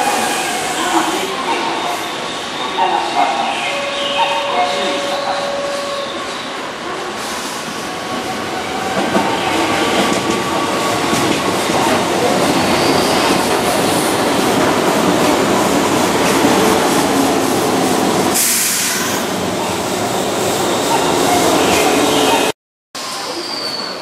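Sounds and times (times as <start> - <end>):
hiss: 7.2 - 8.0, 18.4 - 19.3.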